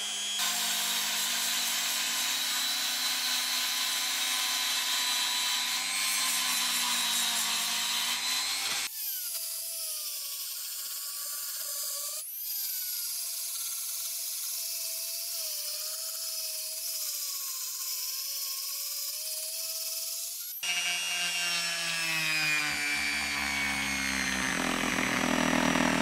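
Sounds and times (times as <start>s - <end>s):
rotary tool whining: 0.0s - 9.5s, 18.3s - 26.0s.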